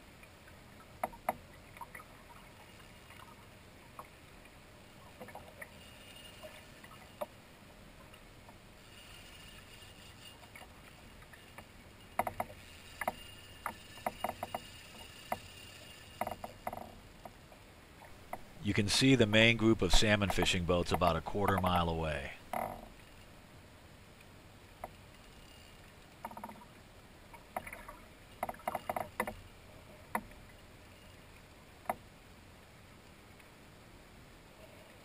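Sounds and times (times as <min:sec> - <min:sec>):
small sharp knocks and clicks: 0:00.9 - 0:01.9, 0:10.5 - 0:15.5, 0:16.2 - 0:17.4, 0:26.2 - 0:26.7, 0:27.3 - 0:29.4, 0:31.8 - 0:32.0.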